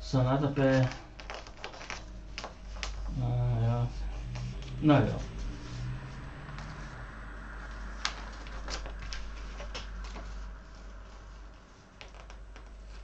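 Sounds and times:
low steady hum: 0.0 - 13.0
sticker sheet crackling: 0.6 - 3.2, 7.7 - 13.0.

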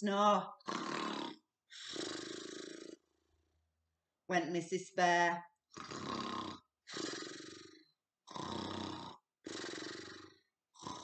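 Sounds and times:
woman imitating snoring: 0.5 - 3.0, 5.7 - 11.0.

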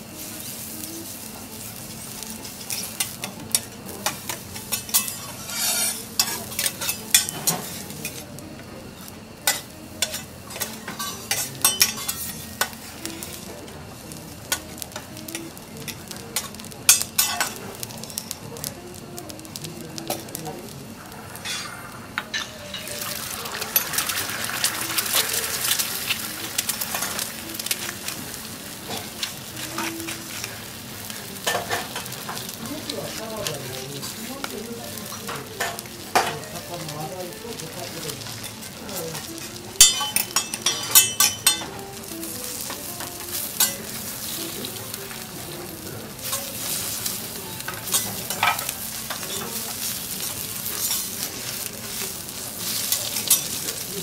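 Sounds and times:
food sizzling: 0.0 - 54.0
spatula scraping on griddle: 0.4 - 8.3, 21.0 - 23.1, 37.5 - 54.0.

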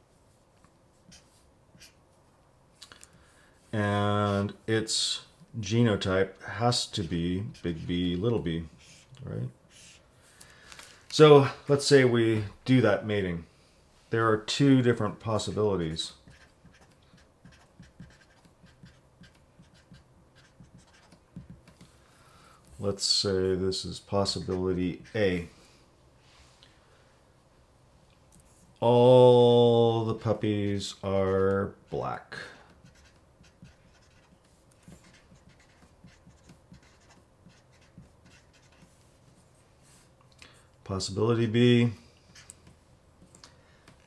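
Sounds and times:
marker scratching on paper: 0.9 - 2.0, 6.8 - 9.1, 9.7 - 10.0, 15.3 - 21.9, 24.2 - 25.5, 32.7 - 40.1.

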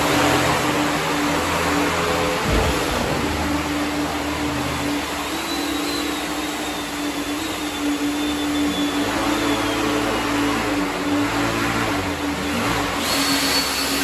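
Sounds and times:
hovercraft fans whirring: 0.0 - 14.0
faint high whine: 2.1 - 11.3.

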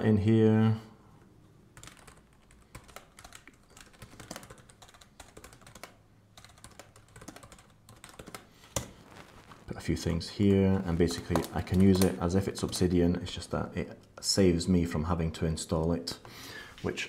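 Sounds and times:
typing on computer keyboard: 1.8 - 8.9, 11.1 - 12.8.

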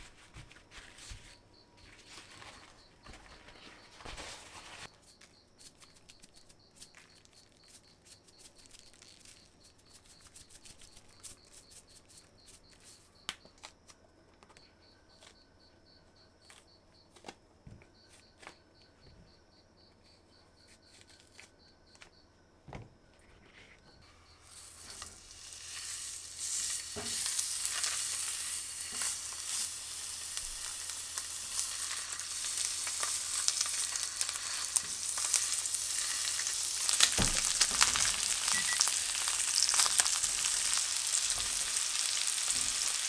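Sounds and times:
paper towel rustling: 0.0 - 5.0
faint high pulsing chirp: 14.4 - 22.4, 38.5 - 39.0.

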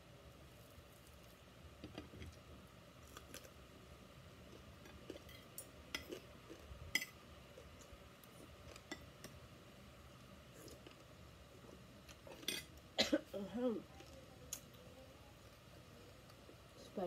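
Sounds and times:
cutlery clinking on dishes: 12.4 - 12.7.

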